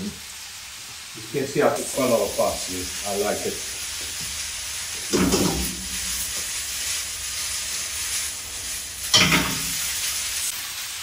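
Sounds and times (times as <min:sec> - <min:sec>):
pasta sizzling in a frying pan: 0:00.0 - 0:11.0
pan clattering against burner grate: 0:09.1 - 0:09.8.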